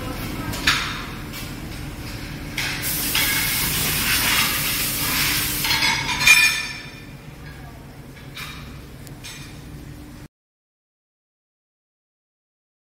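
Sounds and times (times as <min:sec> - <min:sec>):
air hissing out: 0:02.7 - 0:05.9.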